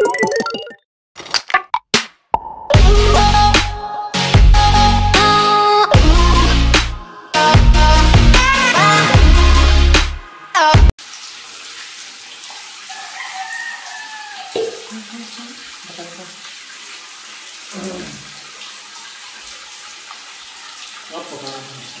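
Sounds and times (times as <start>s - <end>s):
water running from tap: 11.0s - 22.0s.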